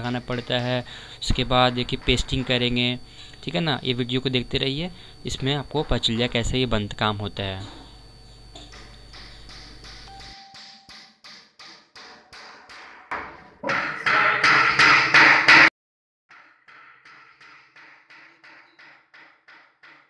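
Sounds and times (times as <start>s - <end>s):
music with tapping beat: 9.2s - 13.0s.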